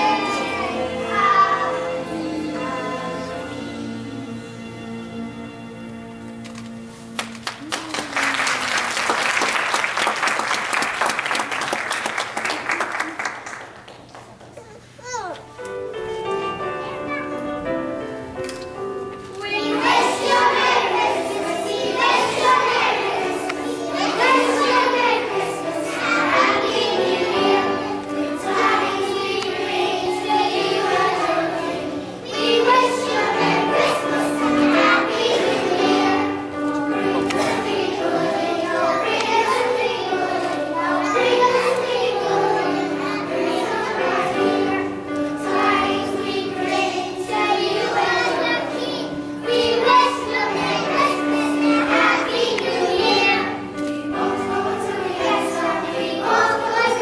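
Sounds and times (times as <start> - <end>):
children singing: 0.0 - 3.8, 19.4 - 57.0
musical accompaniment: 0.0 - 14.4, 15.4 - 57.0.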